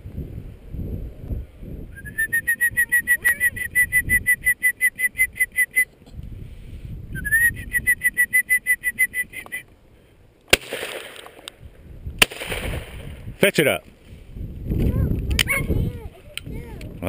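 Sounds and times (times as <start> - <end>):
shrill pulsing whistle trill: 1.9 - 5.9, 7.1 - 9.7.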